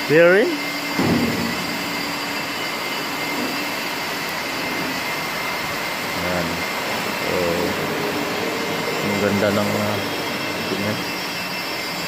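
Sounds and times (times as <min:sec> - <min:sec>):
high machine whines: 0:00.0 - 0:12.0
machine hissing: 0:00.0 - 0:12.0.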